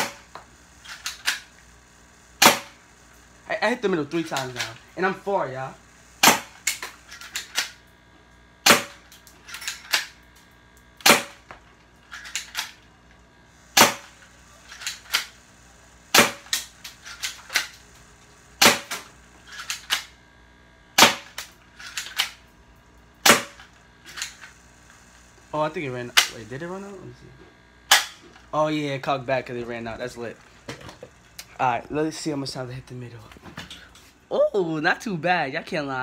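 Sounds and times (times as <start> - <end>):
bb pistol shots: 2.4 - 2.8, 6.2 - 6.8, 8.6 - 9.0, 11.0 - 11.5, 13.7 - 14.2, 16.1 - 17.7, 18.6 - 19.1, 21.0 - 22.3, 23.2 - 23.6, 27.9 - 28.2.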